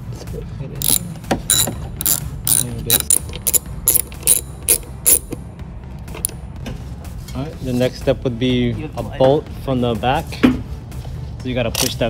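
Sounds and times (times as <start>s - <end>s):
socket ratchet clicking: 0.8s - 5.4s.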